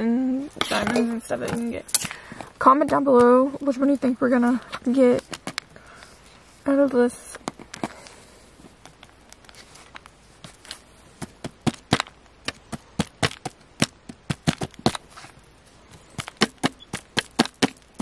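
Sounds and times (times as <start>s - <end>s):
digging tool chipping and scraping: 0.6s - 2.2s, 10.4s - 18.0s.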